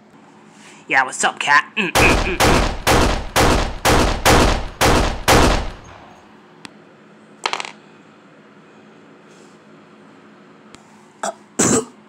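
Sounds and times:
gunshots with ring-out: 2.0s - 6.2s.

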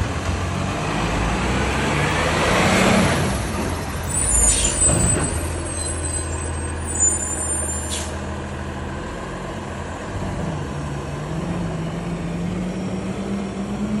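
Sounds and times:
garbage truck diesel engine: 0.0s - 14.0s.

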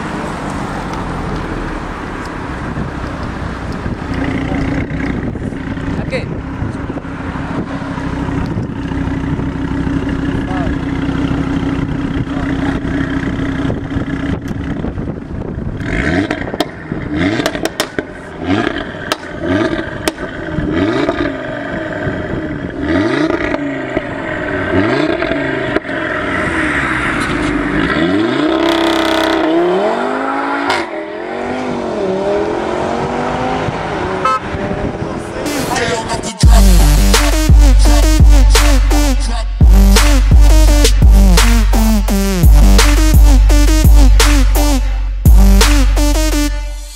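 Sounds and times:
car engine idling and revving: 0.0s - 46.9s
exhaust cracks: 0.4s - 7.0s, 8.0s - 29.7s.

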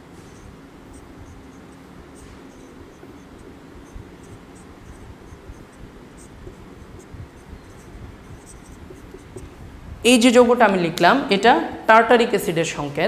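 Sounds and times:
low room hum: 0.0s - 13.0s
marker pen writing on whiteboard: 0.1s - 9.6s.

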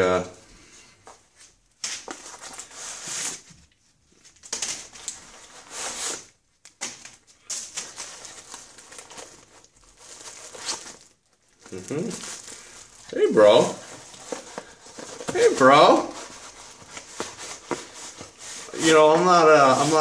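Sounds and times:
plastic bag rustling: 1.9s - 20.0s
cardboard box crinkling: 7.6s - 20.0s.

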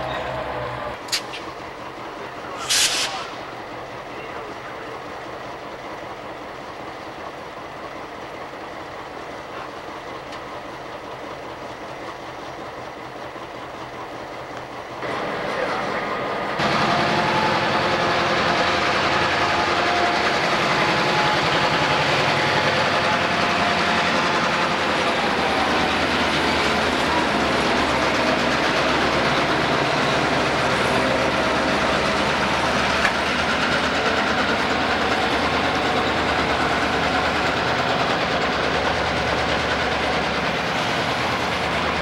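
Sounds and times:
diesel locomotive running: 0.0s - 42.0s
outdoor background noise: 0.0s - 42.0s.

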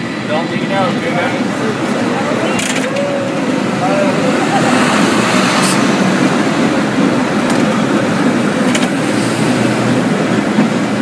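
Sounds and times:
cable car rumbling: 0.0s - 11.0s.

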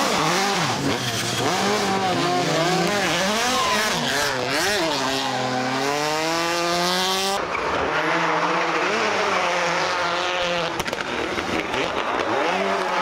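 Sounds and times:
car engine at high revs: 0.0s - 13.0s
rally car engine revving: 0.0s - 13.0s
tyres squealing and skidding: 0.1s - 5.8s.

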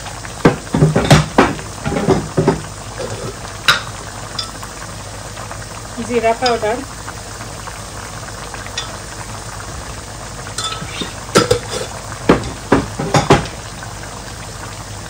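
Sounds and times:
beef sizzling in a pan: 0.0s - 15.0s
utensils and containers clinking: 10.6s - 13.5s.

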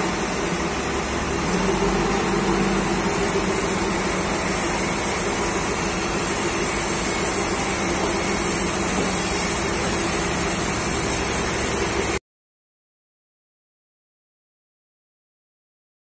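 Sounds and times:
forklift engine running under load: 0.0s - 12.2s.

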